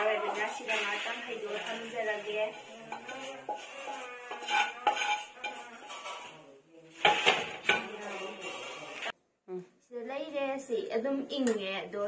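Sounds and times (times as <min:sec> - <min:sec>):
wok clanking on stove: 0:00.0 - 0:06.4, 0:07.0 - 0:09.1
spatula scraping a wok: 0:00.0 - 0:09.2.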